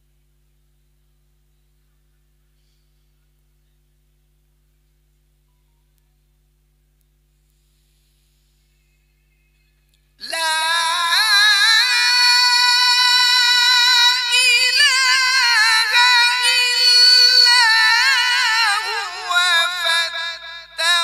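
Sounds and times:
man chanting melodically: 0:10.2 - 0:21.0.

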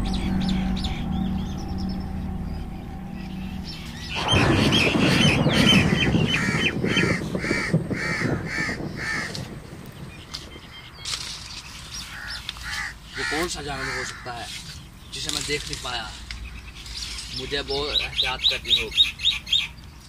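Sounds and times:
crows cawing: 0:04.2 - 0:09.7, 0:11.9 - 0:14.8
dry leaves rustling: 0:09.2 - 0:18.8.

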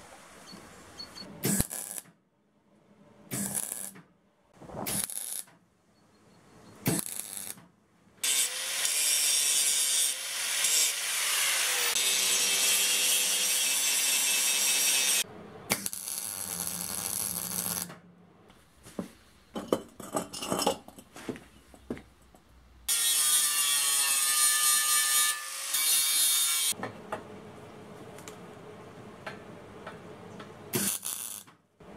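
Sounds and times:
welding crackle: 0:01.5 - 0:02.1, 0:03.3 - 0:04.0, 0:04.7 - 0:05.5, 0:06.9 - 0:07.6, 0:15.7 - 0:17.9, 0:30.8 - 0:31.5
angle grinder grinding metal: 0:08.2 - 0:15.2.

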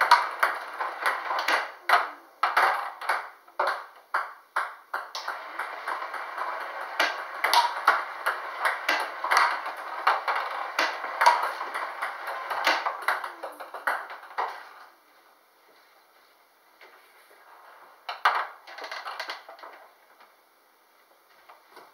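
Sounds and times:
table tennis balls clicking: 0:00.0 - 0:14.9, 0:18.0 - 0:19.9.

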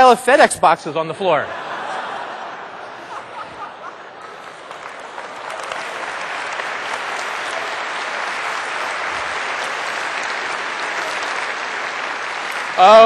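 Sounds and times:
audience applauding: 0:03.1 - 0:13.0.

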